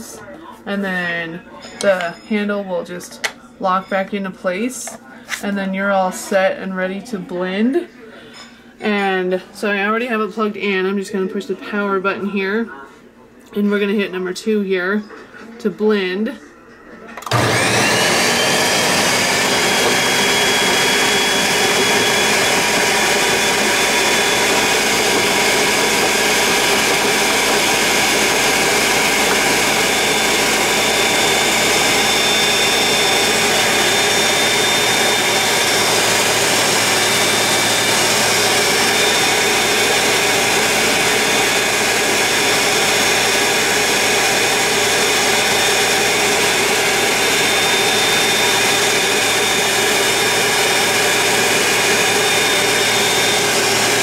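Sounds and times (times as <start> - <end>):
blender motor whining: 17.2 - 54.0.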